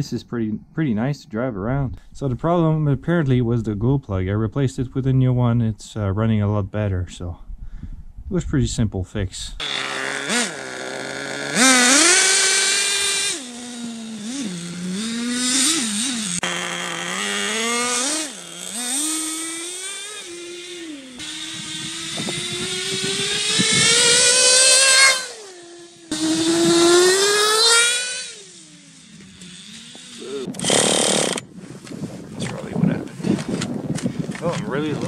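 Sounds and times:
model engine revving: 0:09.6 - 0:31.4.

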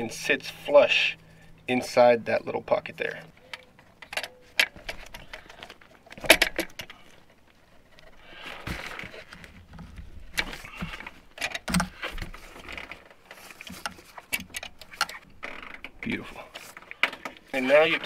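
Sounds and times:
scraping rustle: 0:06.9 - 0:15.4.

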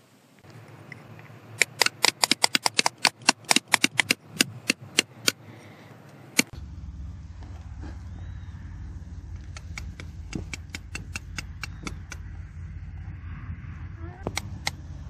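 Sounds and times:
hammer tapping rock: 0:09.6 - 0:12.2.

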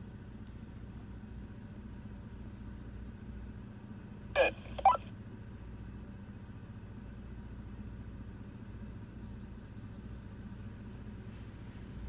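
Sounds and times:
car engine running at low revs: 0:00.0 - 0:12.0.

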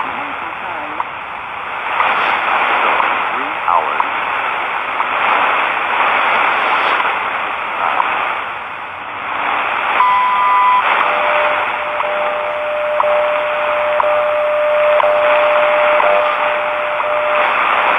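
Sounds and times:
radio static hiss: 0:00.0 - 0:17.9
steady lower tone: 0:00.0 - 0:17.9
short beep: 0:10.0 - 0:17.6.

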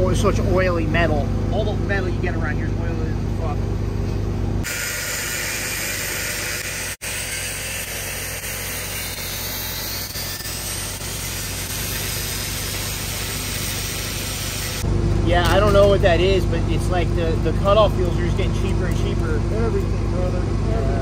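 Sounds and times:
angle grinder cutting steel: 0:04.6 - 0:14.9.

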